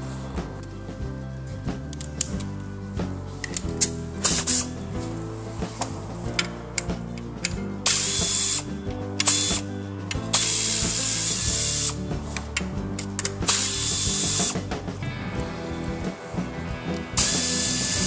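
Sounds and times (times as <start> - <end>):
cordless drill running: 7.9 - 9.6, 10.4 - 12.0, 13.5 - 14.6, 17.2 - 18.0.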